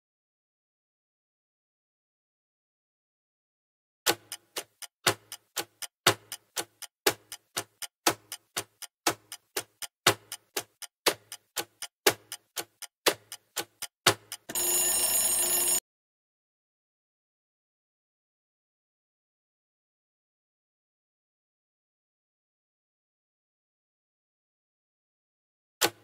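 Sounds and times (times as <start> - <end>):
clock ticking: 4.1 - 15.8
ringing alarm: 14.5 - 15.8.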